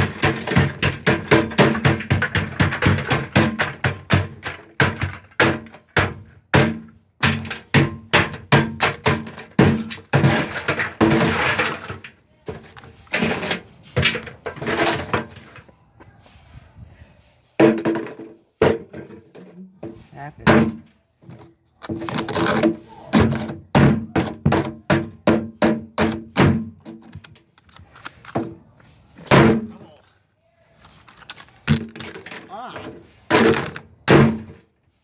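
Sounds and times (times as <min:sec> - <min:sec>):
hammer smashing clay pots: 0:00.0 - 0:15.4, 0:17.6 - 0:20.9, 0:22.0 - 0:27.0, 0:29.3 - 0:29.9, 0:31.7 - 0:34.6.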